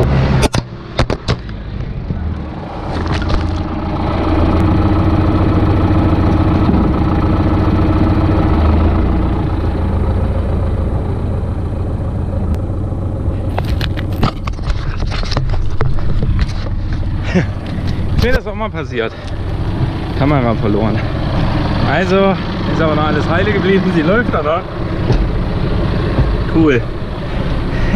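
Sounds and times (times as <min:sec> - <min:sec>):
tractor diesel engine under load: 0:00.0 - 0:27.9
knocks and rattles: 0:13.6 - 0:18.5, 0:25.0 - 0:26.9.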